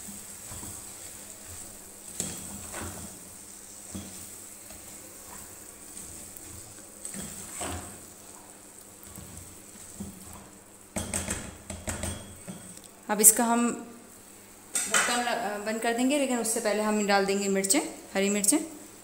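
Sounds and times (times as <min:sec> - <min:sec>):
spatula scraping and knocking: 0:00.0 - 0:03.2, 0:03.8 - 0:08.1
vegetables sizzling in a pot: 0:00.0 - 0:19.0.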